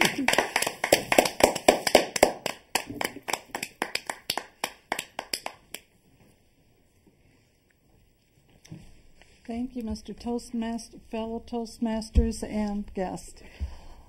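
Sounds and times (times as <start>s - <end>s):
people applauding: 0.0s - 5.9s.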